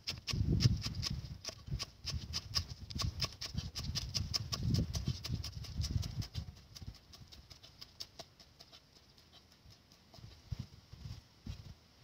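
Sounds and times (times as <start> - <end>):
cleaver chopping on wooden block: 0.0 - 6.2.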